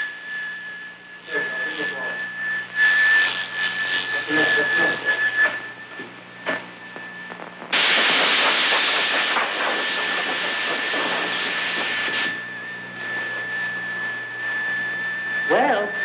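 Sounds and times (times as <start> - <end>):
loud steady hiss: 1.1 - 14.4.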